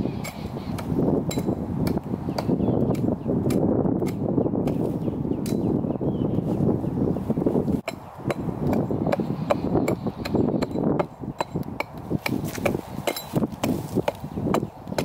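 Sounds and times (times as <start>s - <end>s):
hatchet chopping tree trunk: 0.2s - 5.7s, 7.8s - 15.0s.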